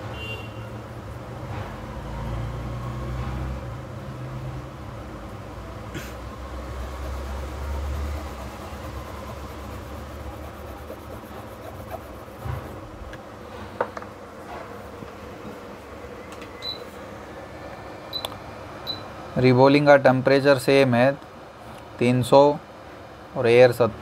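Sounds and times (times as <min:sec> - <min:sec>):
hot air station hissing: 0:06.2 - 0:12.8.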